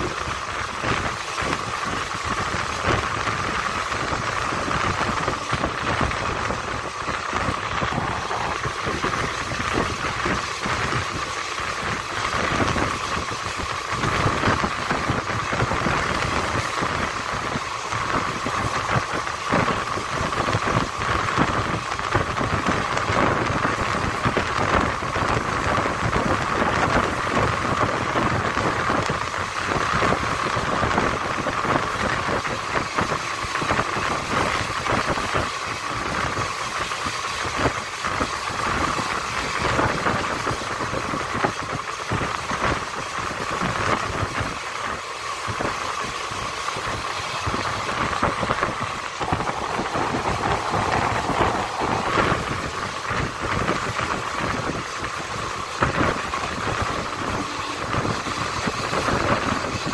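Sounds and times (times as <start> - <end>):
rushing air: 0.0 - 26.8, 47.4 - 59.9
train wheels rushing on rails: 0.0 - 59.9.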